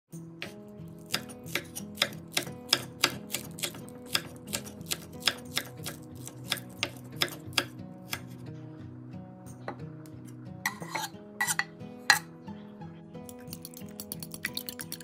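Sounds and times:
knife chopping on wooden board: 0.4s - 8.2s.

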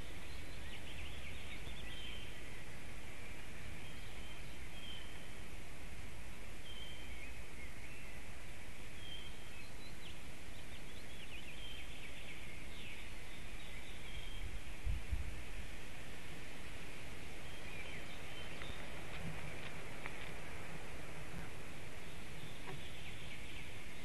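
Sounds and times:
bird chirps: 0.0s - 2.7s, 17.1s - 24.0s.

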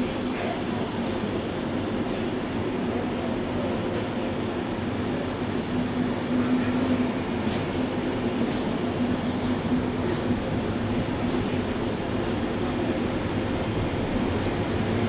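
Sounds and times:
train rumbling past: 0.0s - 15.0s
train wheels clicking: 6.4s - 15.0s.

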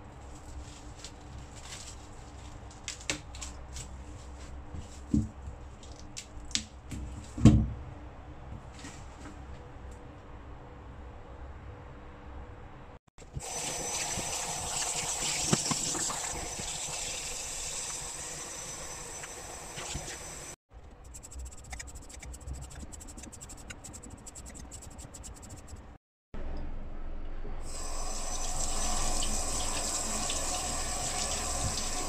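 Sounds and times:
tap water running into sink: 13.4s - 18.1s, 27.7s - 32.0s.

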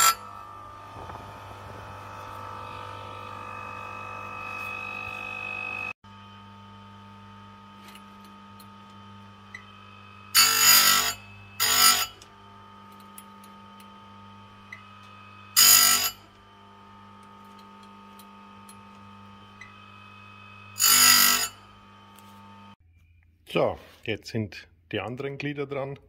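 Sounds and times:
grinding wheel on chain teeth: 0.0s - 0.4s, 7.8s - 13.9s, 14.7s - 16.4s, 17.2s - 21.9s
chain grinder humming: 0.0s - 22.8s.

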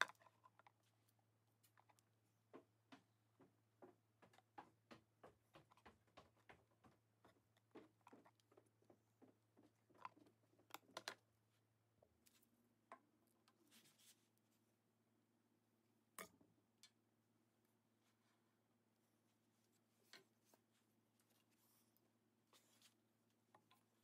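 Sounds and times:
pen tapping and scratching: 2.6s - 11.0s.

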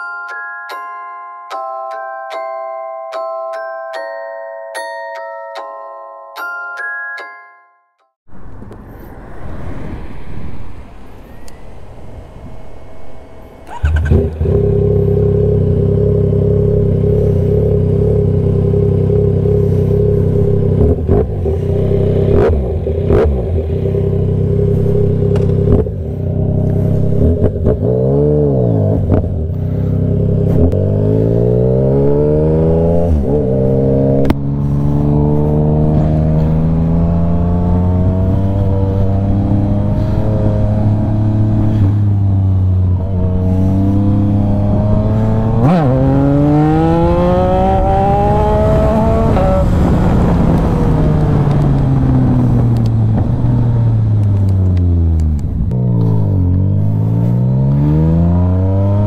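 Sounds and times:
motorcycle engine revving: 12.4s - 59.0s.

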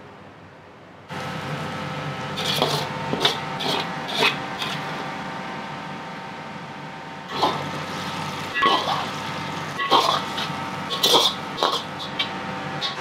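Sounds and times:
rushing kitchen noise: 1.1s - 6.1s, 7.2s - 13.0s
metal ladle scraping a wok: 2.4s - 4.9s, 9.7s - 13.0s.

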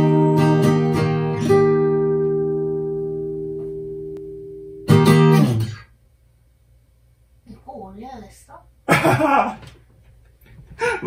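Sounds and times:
acoustic guitar chord strummed: 0.0s - 5.9s.

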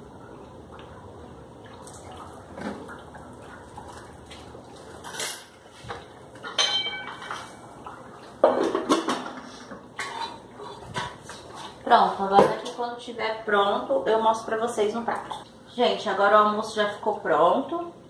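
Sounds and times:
pot lids clinking: 6.4s - 7.5s.

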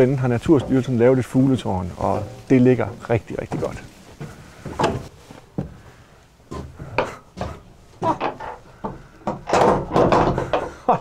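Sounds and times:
footsteps on wooden stairs: 0.0s - 11.0s.

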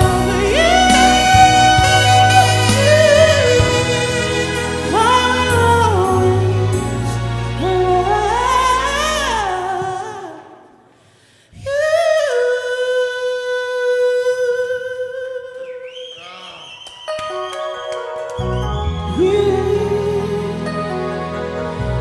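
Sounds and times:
backing music track: 0.0s - 10.2s, 17.1s - 22.0s
man singing: 0.0s - 10.6s, 11.6s - 16.4s, 19.1s - 21.1s.

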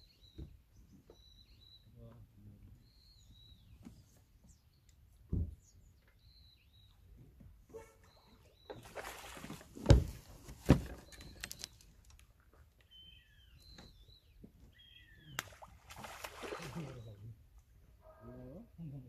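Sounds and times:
small birds chirping: 0.0s - 7.4s, 8.0s - 9.4s, 10.8s - 17.3s
fish thrashing and splashing: 8.8s - 10.1s, 15.4s - 17.0s.

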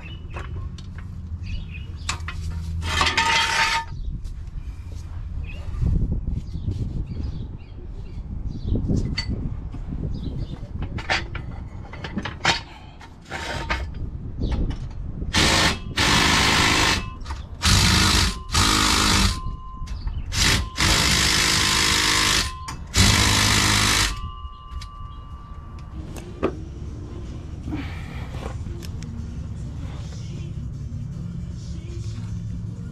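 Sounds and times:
tool handling clicks and knocks: 2.0s - 3.9s, 10.5s - 15.5s
power tool bursts driving bolts: 15.3s - 19.4s, 20.3s - 24.2s.

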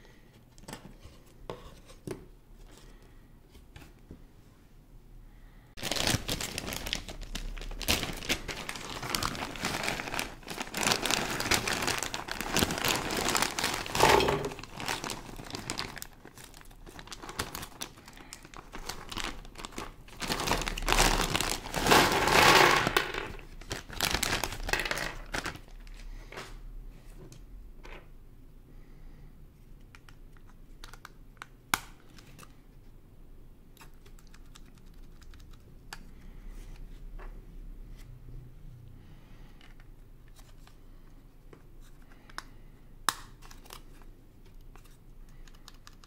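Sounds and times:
plastic bag crinkling: 5.8s - 26.0s.

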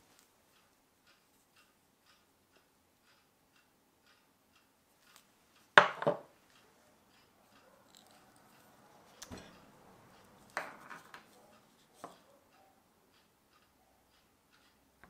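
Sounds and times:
coin clacking on wooden board: 5.8s - 6.3s, 10.6s - 11.3s.

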